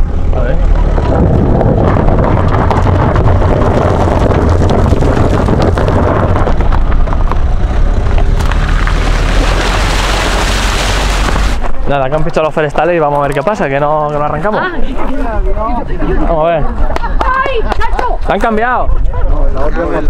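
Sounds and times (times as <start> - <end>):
wind buffeting microphone: 0.0 - 13.9
car rumbling over gravel: 0.0 - 14.2
water spray hissing from wheel: 8.8 - 11.6.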